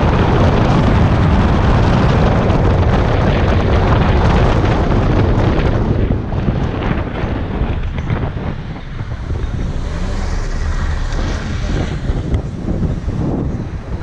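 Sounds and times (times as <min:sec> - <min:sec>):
road noise: 0:00.0 - 0:14.0
wind buffeting microphone: 0:00.0 - 0:14.0.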